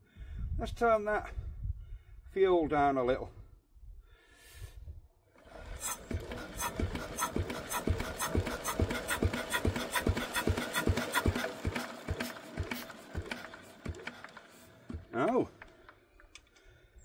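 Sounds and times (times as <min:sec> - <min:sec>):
engine knocking while hand cranked: 0:05.4 - 0:16.5.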